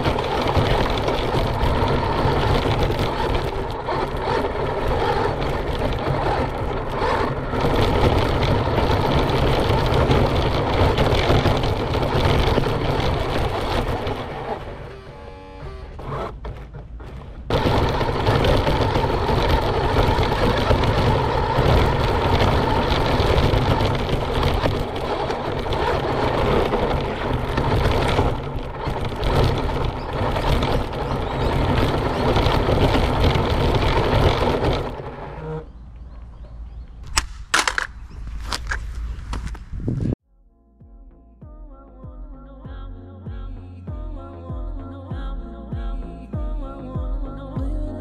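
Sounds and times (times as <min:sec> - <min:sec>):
rc car motor running: 0:00.0 - 0:16.4, 0:17.5 - 0:35.7
rush of tyre and body noise: 0:00.0 - 0:40.2.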